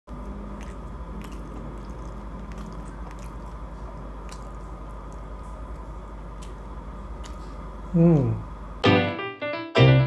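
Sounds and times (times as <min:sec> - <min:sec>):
person chewing food: 0:00.1 - 0:07.9
low electrical hum: 0:00.1 - 0:10.0.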